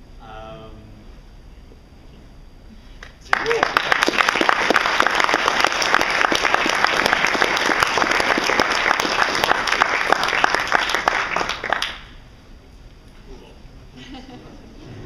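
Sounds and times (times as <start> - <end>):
audience applauding: 3.0 - 12.2.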